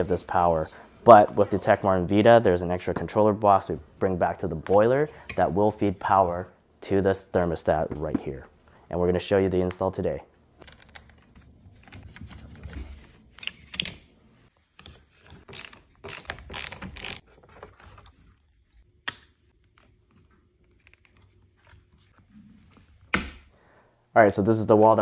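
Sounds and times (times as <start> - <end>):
screwdriver on plastic: 15.4 - 17.2.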